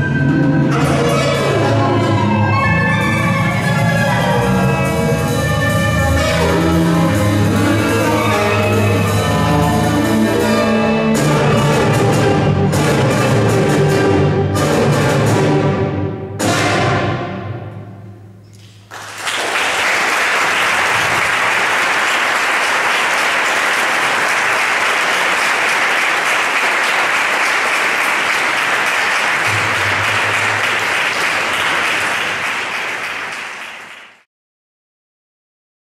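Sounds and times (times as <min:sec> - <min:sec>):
orchestra note: 0:00.0 - 0:18.3
audience applauding: 0:18.6 - 0:34.3.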